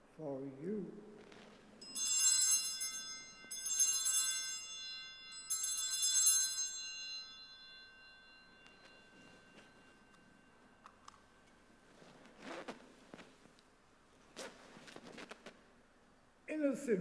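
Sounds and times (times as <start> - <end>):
altar bells ringing: 1.8 - 12.5.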